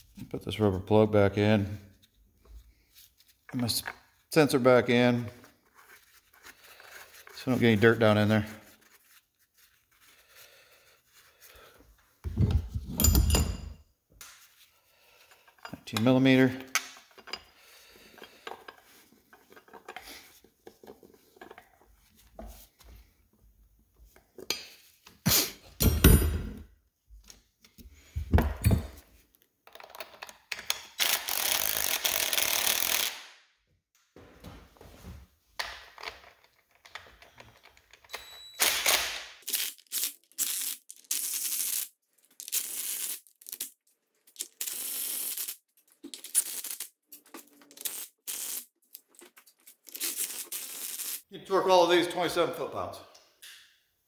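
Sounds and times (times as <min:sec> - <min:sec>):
bolts and metal tools clinking: 0:12.3 - 0:13.8, 0:15.3 - 0:21.8, 0:25.8 - 0:26.6, 0:29.6 - 0:32.6, 0:35.6 - 0:39.0.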